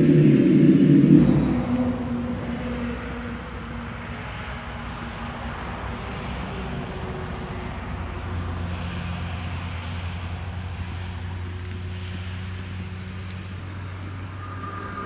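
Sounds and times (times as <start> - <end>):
rushing noise: 0.0 - 11.4, 13.7 - 15.0
low motor hum: 0.0 - 15.0.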